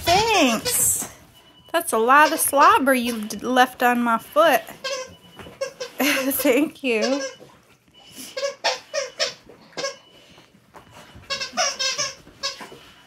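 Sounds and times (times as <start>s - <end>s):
dog toy squeaking: 0.0s - 1.1s, 2.1s - 3.4s, 4.6s - 7.6s, 8.2s - 10.1s, 11.2s - 12.8s.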